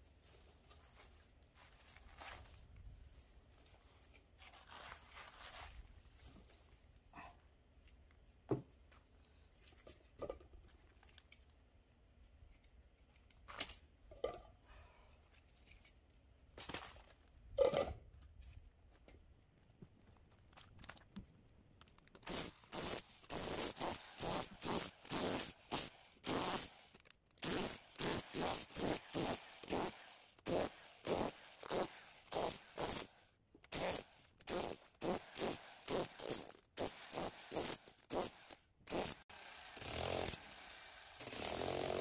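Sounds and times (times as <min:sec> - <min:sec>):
hammer drill chiselling: 0:22.2 - 0:33.1, 0:33.7 - 0:42.0.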